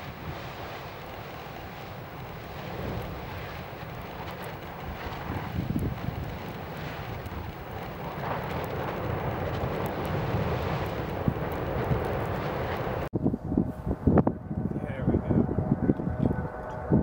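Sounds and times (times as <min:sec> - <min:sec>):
lava flow rumbling: 0:00.0 - 0:13.2
wind buffeting microphone: 0:00.0 - 0:17.0
faint crackling ticks: 0:00.8 - 0:13.1.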